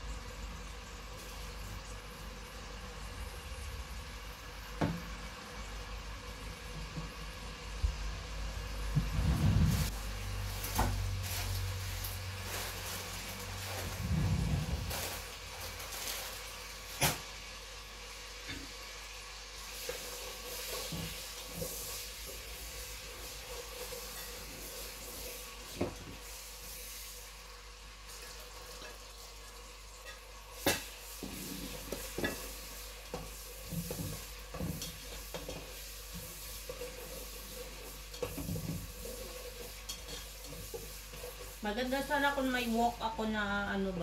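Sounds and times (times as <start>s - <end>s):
food sizzling in a pan: 0.0s - 44.0s
spatula scraping pan: 19.7s - 26.3s, 30.0s - 42.5s.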